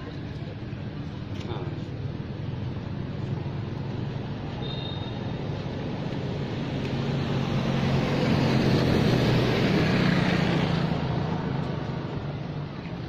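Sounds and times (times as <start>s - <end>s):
motor vehicle engine passing: 2.8s - 12.7s.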